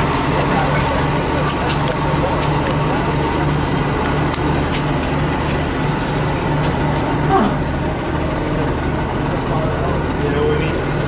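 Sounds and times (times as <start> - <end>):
heavy truck engine throbbing: 0.0 - 11.0.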